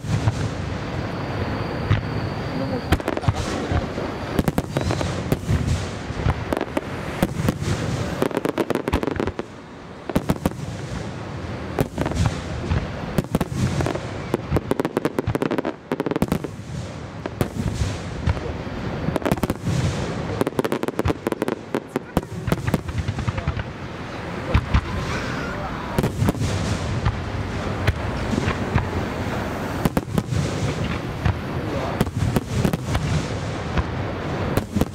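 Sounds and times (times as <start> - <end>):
firework crackling: 0.0 - 34.9
firework shells bursting: 1.4 - 9.5.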